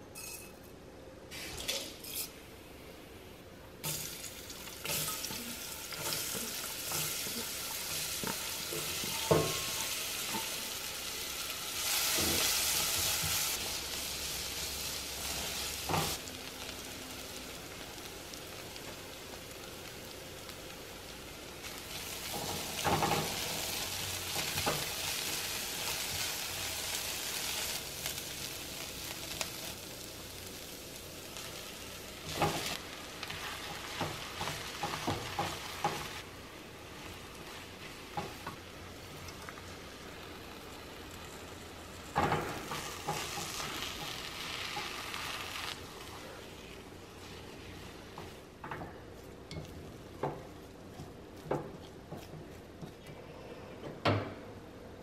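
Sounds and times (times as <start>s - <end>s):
onion frying in oil: 3.8s - 53.0s.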